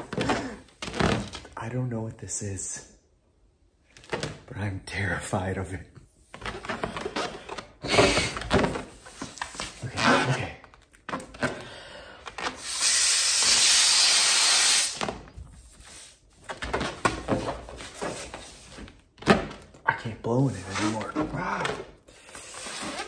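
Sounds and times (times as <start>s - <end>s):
rubber glove handling noises: 6.3s - 12.8s, 15.0s - 23.0s
breath blowing into rubber glove: 12.6s - 15.0s.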